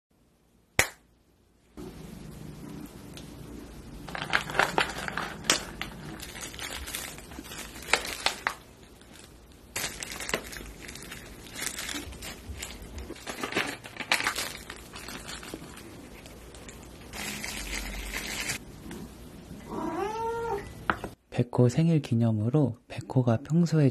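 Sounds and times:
flakes shaken from packet: 0:04.0 - 0:15.9, 0:17.2 - 0:18.6
plastic packaging crinkling: 0:04.0 - 0:18.6.

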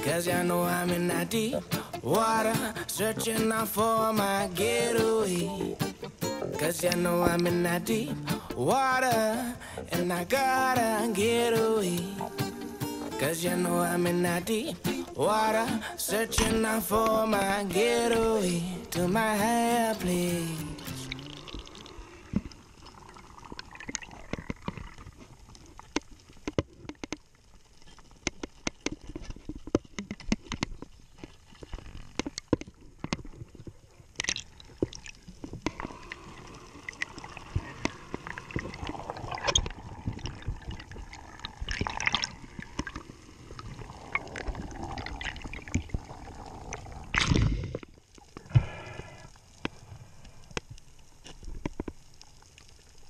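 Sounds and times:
underwater clicks and crackles: 0:13.1 - 0:53.0
gurgling rushes of water and bubbles: 0:16.4 - 0:26.9, 0:32.8 - 0:53.0.

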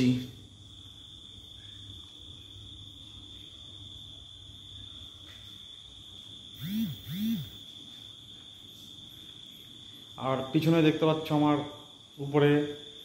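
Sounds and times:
high-pitched cricket trill: 0:00.0 - 0:13.0.

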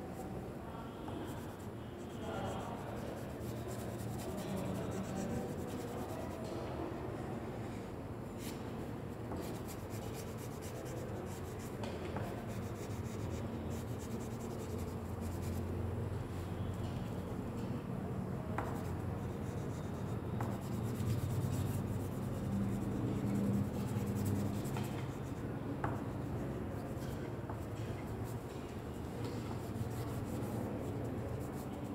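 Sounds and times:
crayon scratching on paper: 0:01.3 - 0:06.4, 0:09.4 - 0:15.7, 0:18.6 - 0:25.4, 0:29.6 - 0:31.9.

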